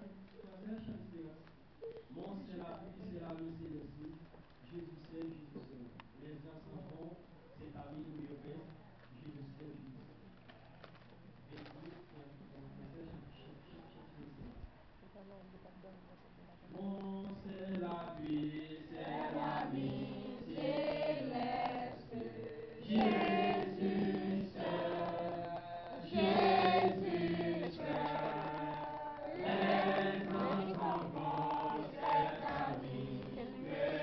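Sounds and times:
congregation singing: 0:16.7 - 0:34.0.

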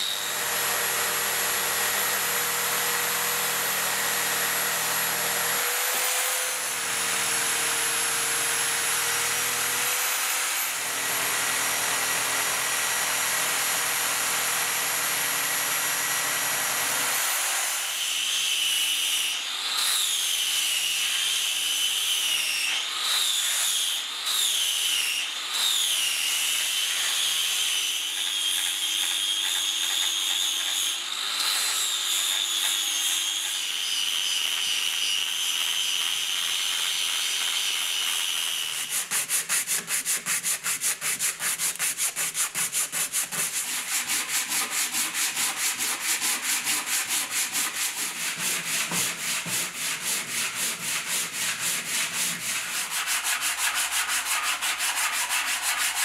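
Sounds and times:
angle grinder sanding wood: 0:20.2 - 0:56.0
sanding block rasping on wood: 0:38.8 - 0:56.0.

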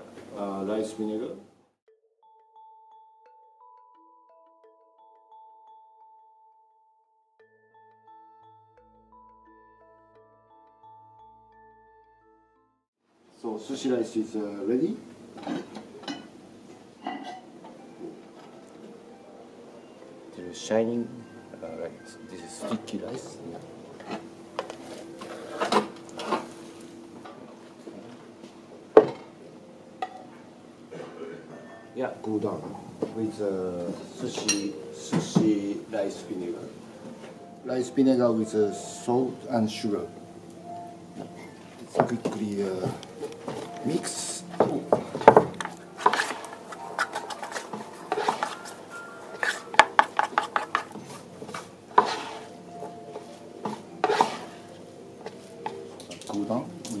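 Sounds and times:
rice paddle scraping rice: 0:46.0 - 0:48.6, 0:52.0 - 0:52.6, 0:54.0 - 0:54.6.

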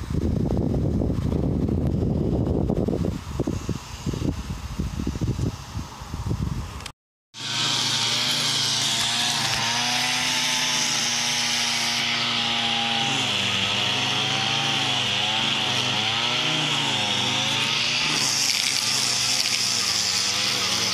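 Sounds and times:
string trimmer engine running: 0:07.4 - 0:20.9.

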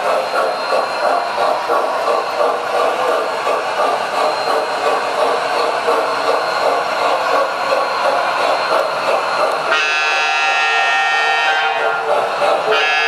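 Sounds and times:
buzzy electronic train horn: 0:09.7 - 0:12.0, 0:12.7 - 0:13.0.

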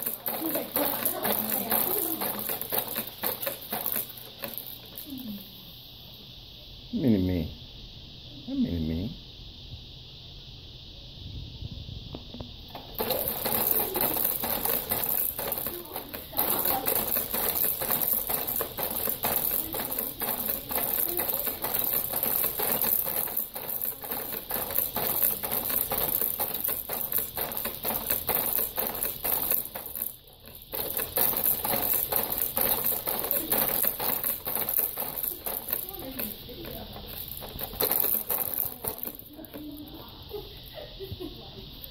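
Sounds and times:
baby jumper rattling and clattering: 0:00.0 - 0:05.3, 0:12.7 - 0:40.1.

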